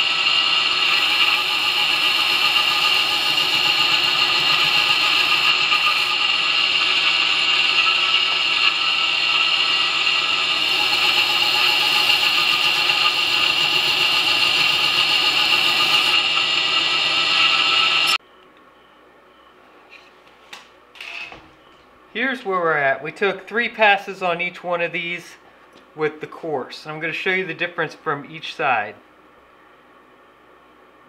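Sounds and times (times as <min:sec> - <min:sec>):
belt grinder grinding knife blade: 0:00.0 - 0:18.2.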